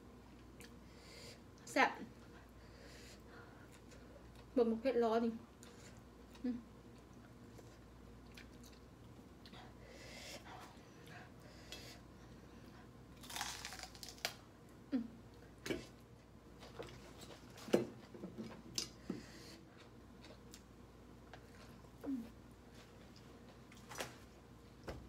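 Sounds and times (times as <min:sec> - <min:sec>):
person chewing: 0:05.6 - 0:09.5, 0:13.2 - 0:14.4, 0:18.7 - 0:21.8.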